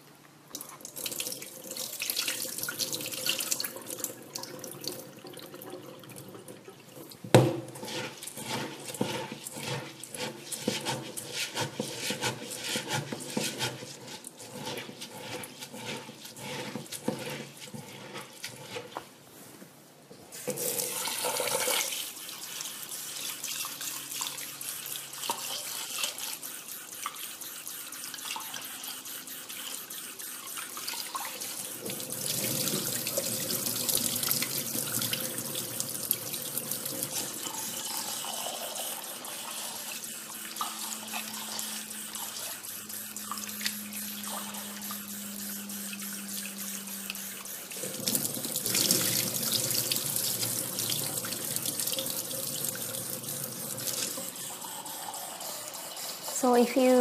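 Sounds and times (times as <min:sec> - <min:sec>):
wet rice rubbed in bowl: 0:07.7 - 0:19.5, 0:21.2 - 0:57.0
tap water running into bowl: 0:20.5 - 0:22.0, 0:25.1 - 0:26.2, 0:30.8 - 0:39.7, 0:47.1 - 0:55.3.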